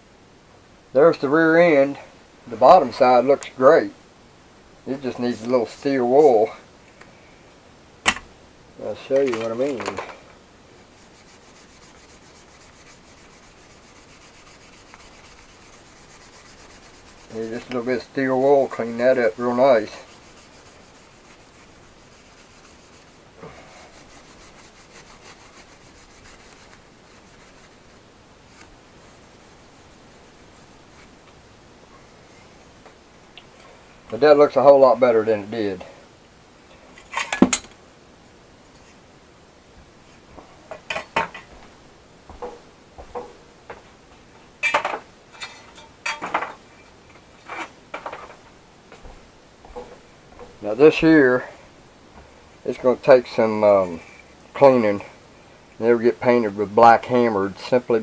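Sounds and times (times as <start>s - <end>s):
steel wool scrubbing metal: 10.8s - 31.1s, 49.1s - 51.1s
metal parts clinking and scraping: 40.7s - 41.6s, 44.6s - 46.6s.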